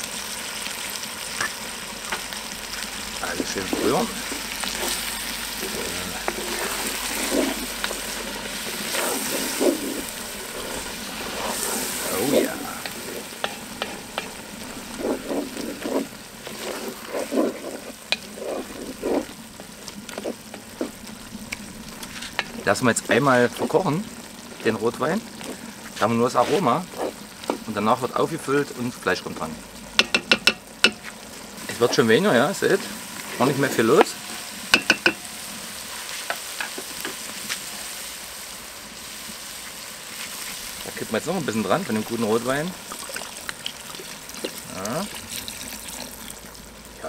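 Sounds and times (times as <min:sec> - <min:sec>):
steady sizzle: 0:00.0 - 0:47.0
wooden spoon scraping pot: 0:03.3 - 0:22.8, 0:25.3 - 0:27.8, 0:33.2 - 0:35.2
wooden spoon knocking on pot: 0:30.0 - 0:31.0, 0:34.7 - 0:35.2.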